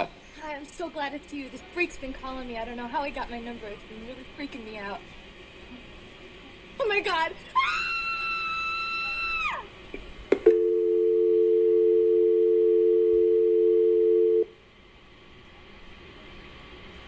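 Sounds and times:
dial tone: 10.5s - 14.5s.

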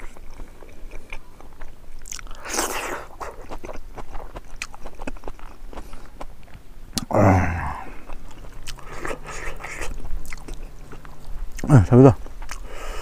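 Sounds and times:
person chewing food: 0.0s - 13.0s.

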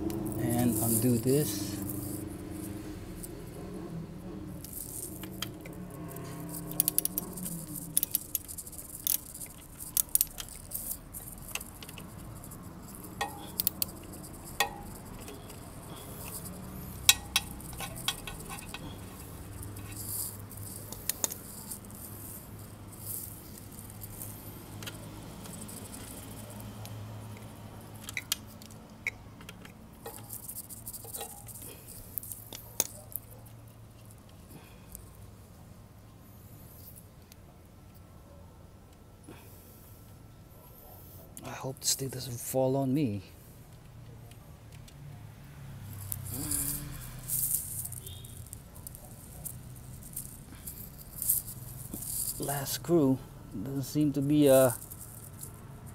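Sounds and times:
wrench clicking on bolts: 4.6s - 33.0s.

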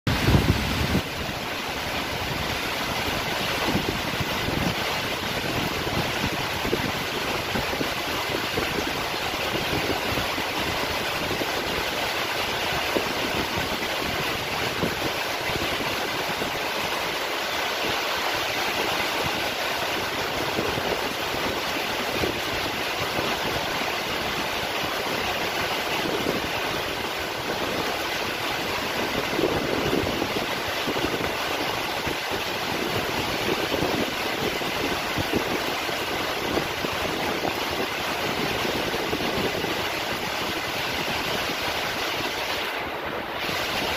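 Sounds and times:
steady rain falling: 0.1s - 43.9s.

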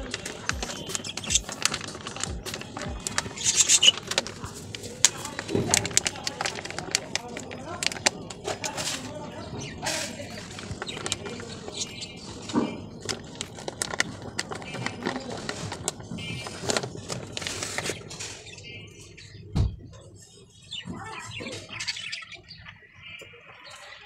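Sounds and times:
compost pattering into bowl: 0.0s - 18.4s
plastic packet crinkling: 0.0s - 18.6s.

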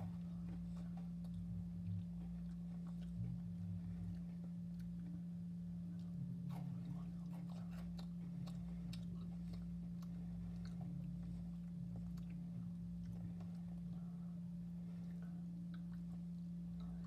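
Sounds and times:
chewing crunchy wafer: 0.0s - 17.0s
steady low hum: 0.0s - 17.0s.

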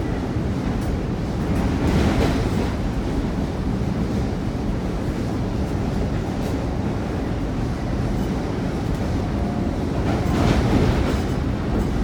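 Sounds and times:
train wheels rumbling on rail: 0.0s - 12.0s.

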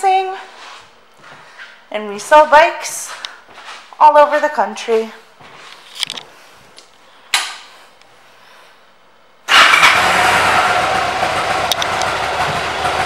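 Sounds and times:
motorcycle engine idling: 9.5s - 13.0s.

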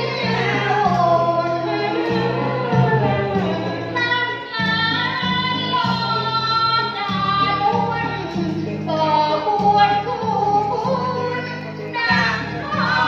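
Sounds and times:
backing track with pulsing bass: 0.0s - 8.9s
woman singing into a microphone: 0.0s - 13.0s.

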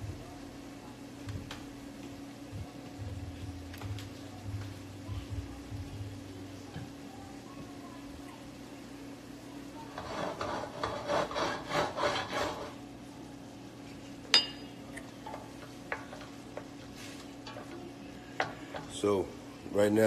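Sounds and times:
steady low hum: 0.0s - 20.0s
utensil scraping a bowl: 9.9s - 12.8s
sharp clink: 14.3s - 14.8s.

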